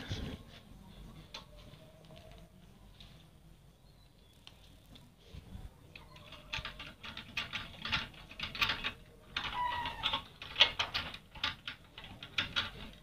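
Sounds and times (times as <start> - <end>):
clicking and scraping of fittings: 6.0 - 13.0.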